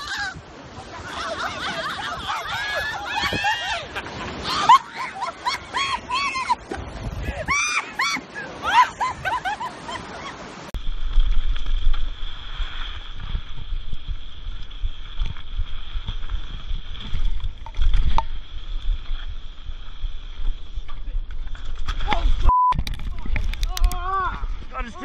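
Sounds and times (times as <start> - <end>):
wind rumble on camera: 0.0 - 4.3, 6.2 - 7.7, 9.0 - 25.0
high-pitched voice shrieking and laughing: 0.0 - 6.6.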